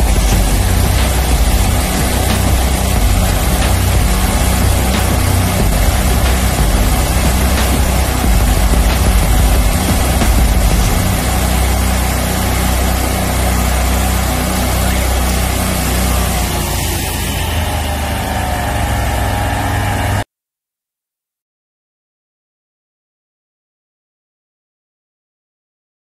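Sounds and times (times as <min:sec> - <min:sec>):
engines low hum: 0:00.0 - 0:20.2
high-pressure water jet hiss: 0:00.0 - 0:20.2.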